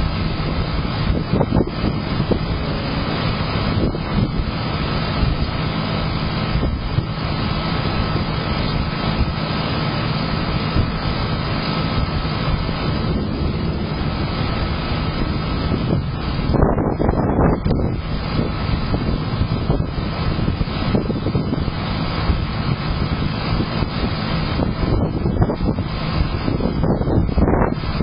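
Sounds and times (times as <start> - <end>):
thunder rumbling: 0.0 - 9.3, 10.6 - 28.0.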